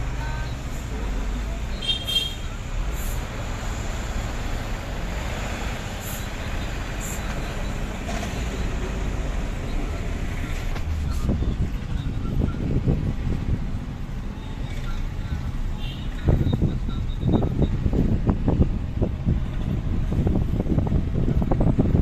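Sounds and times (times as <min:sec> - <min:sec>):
vehicle engine and road rumble: 0:00.0 - 0:22.0.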